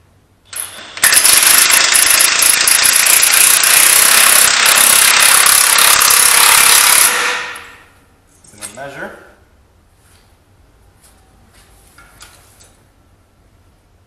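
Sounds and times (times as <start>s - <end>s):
impact wrench hammering: 0.5s - 7.9s.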